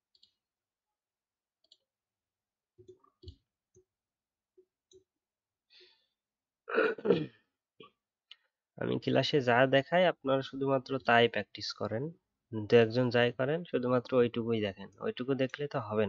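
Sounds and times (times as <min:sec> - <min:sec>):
person sighing: 0:06.7 - 0:07.3.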